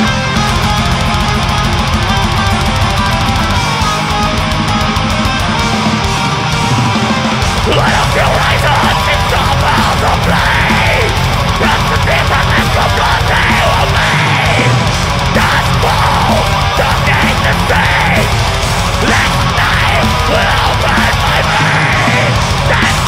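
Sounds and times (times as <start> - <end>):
distorted electric guitars: 0.0 - 23.0
fast drumming: 0.0 - 23.0
harsh growled vocals: 7.5 - 23.0.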